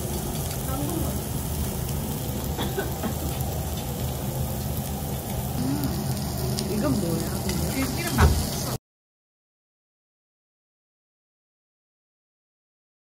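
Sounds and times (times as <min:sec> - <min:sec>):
beef sizzling on a grill: 0:00.0 - 0:08.8
faint voices: 0:05.6 - 0:08.8.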